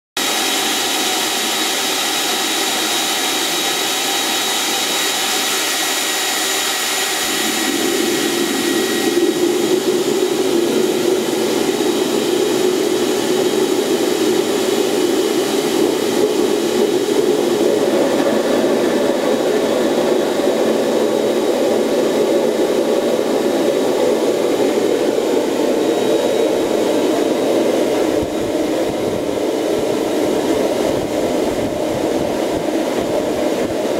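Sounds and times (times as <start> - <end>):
air blower whine: 0.2 - 33.9.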